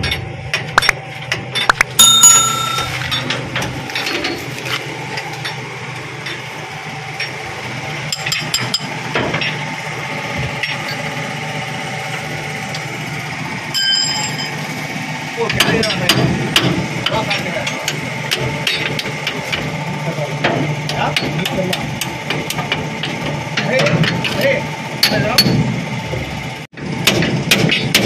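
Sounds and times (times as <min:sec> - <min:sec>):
steady low hum: 0:00.0 - 0:21.2
metal tools clinking: 0:01.6 - 0:04.4
loud ringing metal strike: 0:01.9 - 0:03.6.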